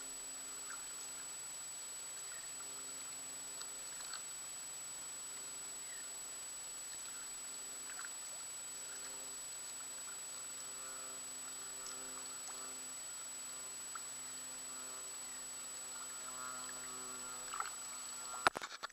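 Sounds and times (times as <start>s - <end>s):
steady hiss: 0.0s - 18.7s
faint tonal hum: 0.0s - 18.9s
paddle splashes and drips: 2.4s - 4.3s, 6.9s - 10.2s, 16.6s - 17.8s.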